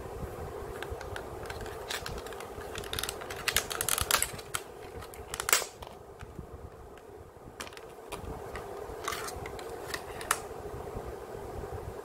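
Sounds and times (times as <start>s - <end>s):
plastic blister packaging crackling: 0.7s - 10.5s.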